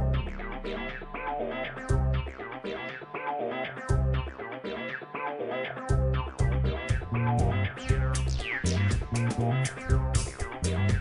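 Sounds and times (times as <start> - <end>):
regular beat: 0.0 - 3.0, 3.8 - 4.4, 5.9 - 11.0
bass guitar: 0.0 - 11.0
plucked guitar: 0.0 - 11.0.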